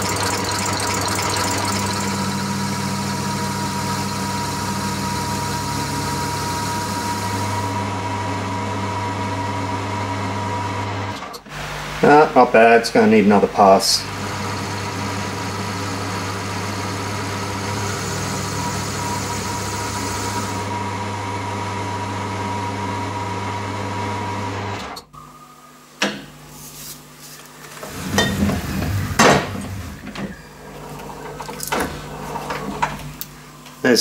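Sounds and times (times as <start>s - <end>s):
metal lathe humming and whining: 0.0s - 11.2s, 13.6s - 24.7s.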